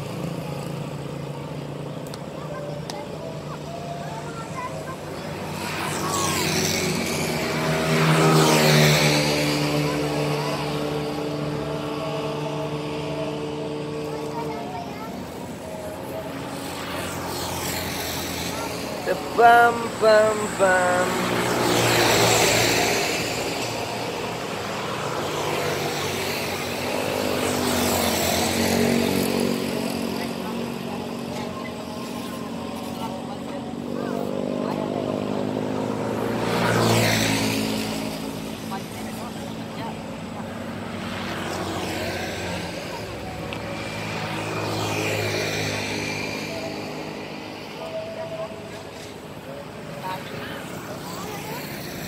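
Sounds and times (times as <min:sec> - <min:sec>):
bus rushing past: 0:00.0 - 0:52.0
steady engine drone: 0:00.0 - 0:52.0
vehicle passing: 0:00.0 - 0:52.0.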